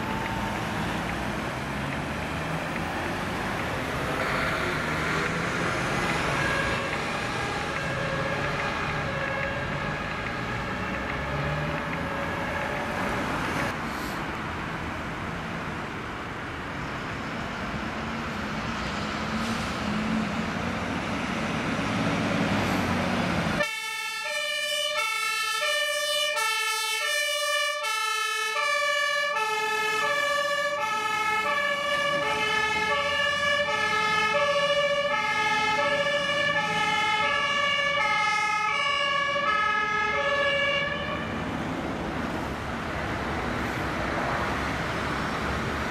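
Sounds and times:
faint siren: 0.0s - 1.1s, 2.4s - 13.0s, 23.6s - 41.4s
fire engine two-tone siren: 0.0s - 13.8s, 23.5s - 41.6s
road traffic: 0.0s - 45.9s.

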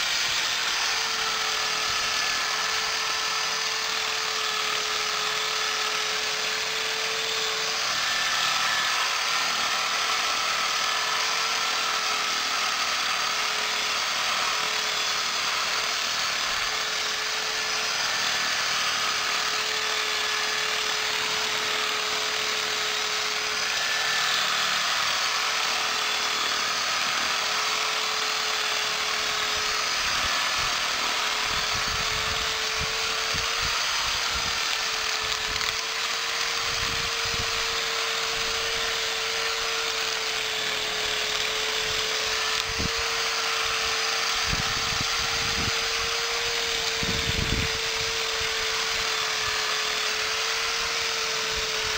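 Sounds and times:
electric drill motor whine: 0.0s - 51.9s
cutter whipping through grass: 29.4s - 49.7s.

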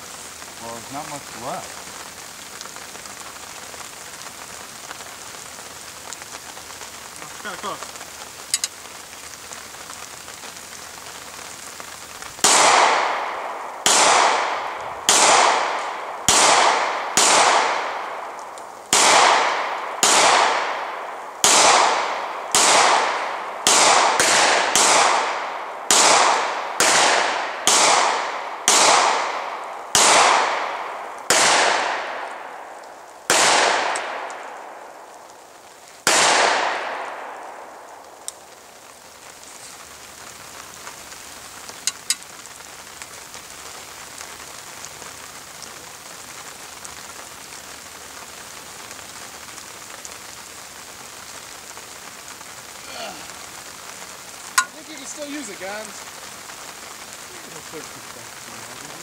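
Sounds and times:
pistol shots echoing: 12.4s - 32.7s, 33.3s - 34.6s, 36.0s - 37.7s.

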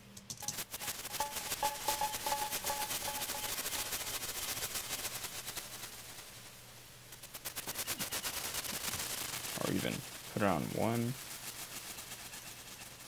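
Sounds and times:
glitchy crackle of rapid clicks: 0.1s - 5.8s
hiss: 3.5s - 13.0s.

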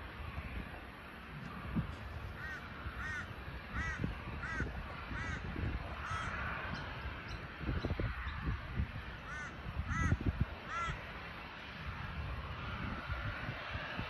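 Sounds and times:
wind rumble on microphone: 0.0s - 14.0s
crow cawing: 2.4s - 6.4s, 9.2s - 11.0s.

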